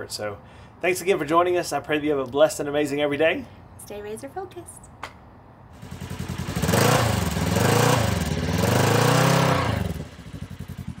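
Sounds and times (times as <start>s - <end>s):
engine idling and revving: 5.7s - 11.0s.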